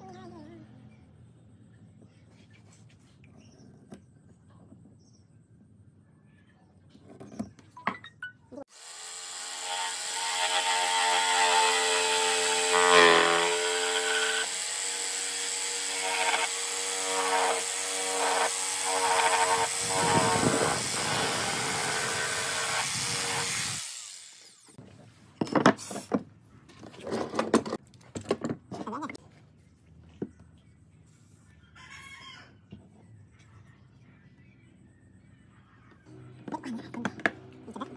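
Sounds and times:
jigsaw cutting wood: 0:08.7 - 0:24.6.

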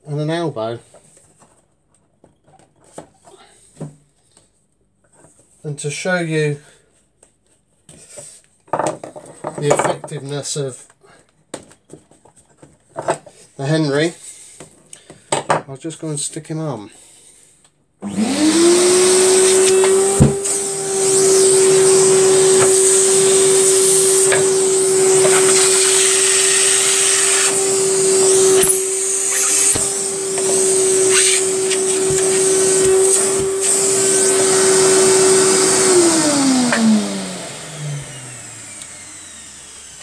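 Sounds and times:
vacuum cleaner running: 0:18.0 - 0:40.0.

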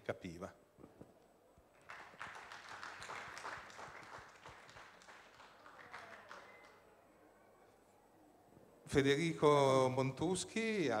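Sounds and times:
audience applauding: 0:01.8 - 0:06.8.

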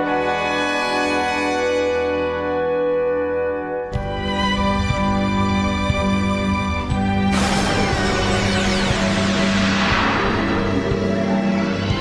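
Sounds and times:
steady low drone: 0:05.0 - 0:12.0
hissing swell with pitch sweeps: 0:08.6 - 0:12.0.

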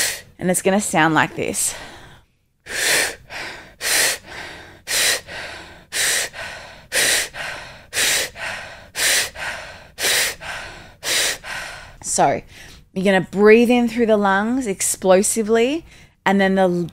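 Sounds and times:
woman breathing rapidly: 0:00.0 - 0:00.4, 0:01.3 - 0:12.9, 0:15.8 - 0:16.2.

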